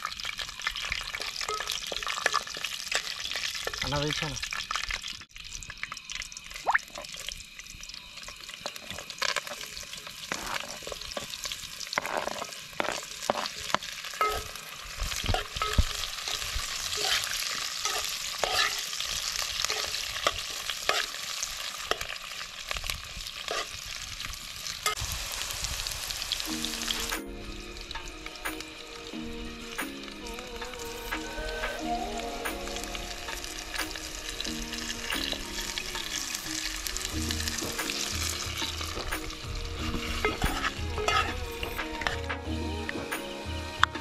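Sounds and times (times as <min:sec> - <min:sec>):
food sizzling in a pot: 0:00.0 - 0:44.0
utensil stirring and scraping: 0:12.0 - 0:18.9
music: 0:26.4 - 0:44.0.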